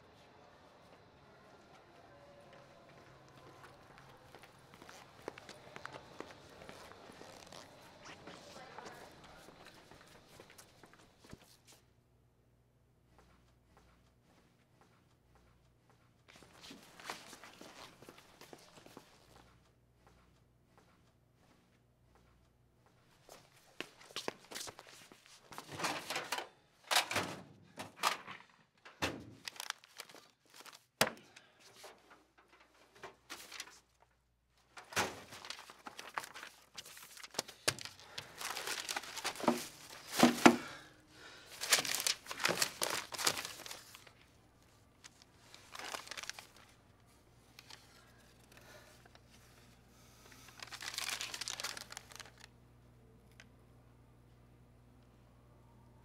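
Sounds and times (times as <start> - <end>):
paper rustling and crumpling: 3.6 - 11.6, 16.3 - 19.3, 29.4 - 31.0, 31.7 - 40.7, 41.5 - 44.4, 45.0 - 46.8, 47.5 - 49.4, 50.3 - 52.5.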